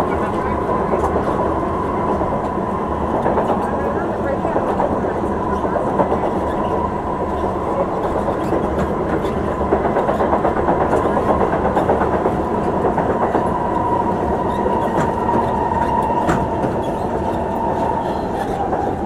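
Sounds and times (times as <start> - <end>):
high train whine: 0.0 - 19.0
train wheels rumbling on rails: 0.0 - 19.0.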